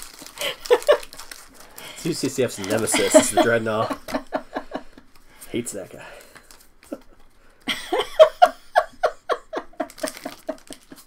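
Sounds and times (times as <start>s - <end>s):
person laughing: 0.4s - 1.2s, 2.6s - 5.0s, 7.7s - 11.0s.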